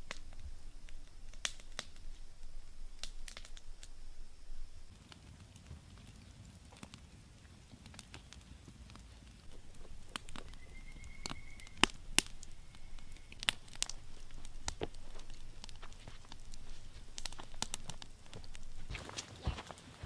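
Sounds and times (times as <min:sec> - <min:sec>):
campfire crackling and popping: 0:00.0 - 0:20.0
faint high thin whistle: 0:10.4 - 0:11.8.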